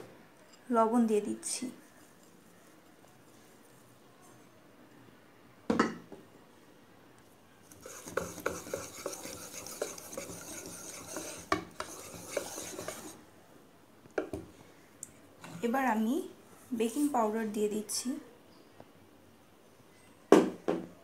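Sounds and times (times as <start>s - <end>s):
whisk beating batter in bowl: 7.7s - 13.2s.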